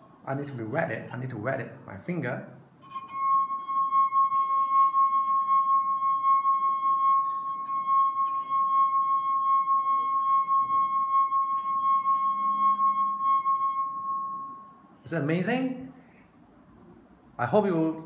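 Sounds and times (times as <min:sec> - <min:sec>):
wine glass singing: 0:02.8 - 0:15.0.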